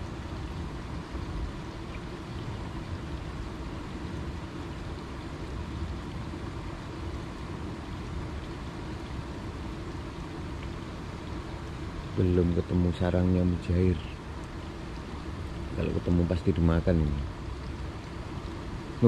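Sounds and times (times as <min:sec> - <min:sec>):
light rain on pond: 0:00.0 - 0:19.0.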